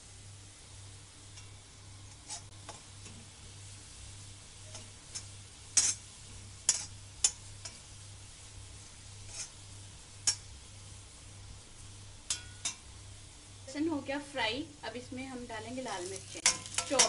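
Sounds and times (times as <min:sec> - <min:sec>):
garlic sizzling in butter: 0:00.0 - 0:17.0
metal utensil scraping pan: 0:02.1 - 0:03.2, 0:04.6 - 0:07.9, 0:09.2 - 0:09.6, 0:10.2 - 0:10.5, 0:16.2 - 0:17.0.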